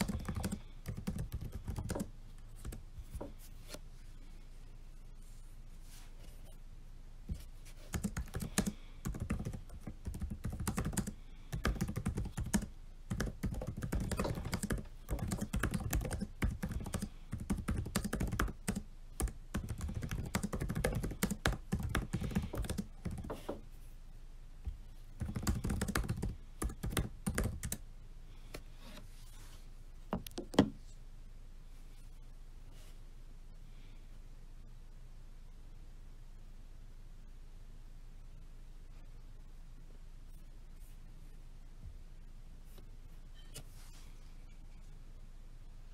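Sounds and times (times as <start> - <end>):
typing on laptop keyboard: 0.0 - 2.8, 7.9 - 23.4, 25.2 - 27.8.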